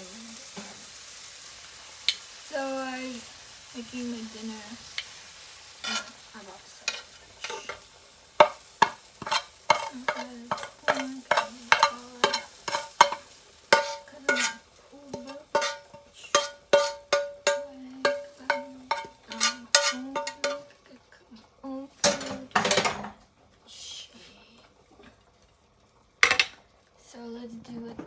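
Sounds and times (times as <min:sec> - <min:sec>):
faint sizzle of frying food: 0:00.0 - 0:28.0
plastic turner scraping frying pan: 0:06.9 - 0:17.3, 0:18.0 - 0:20.7.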